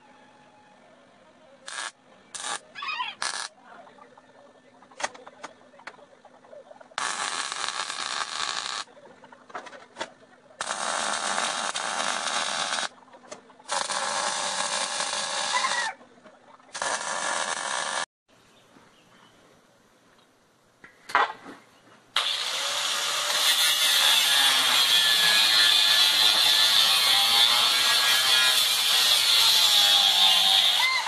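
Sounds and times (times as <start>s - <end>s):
electric welder hissing: 1.7s - 2.6s, 3.2s - 3.5s, 7.0s - 8.9s, 10.6s - 12.9s, 13.7s - 15.6s, 16.7s - 18.1s, 22.2s - 30.8s.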